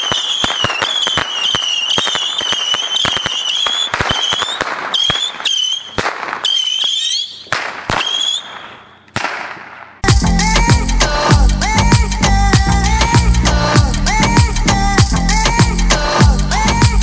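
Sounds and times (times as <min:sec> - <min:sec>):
shrill whistling rockets: 0:00.0 - 0:10.0
firework cracks: 0:00.0 - 0:10.1.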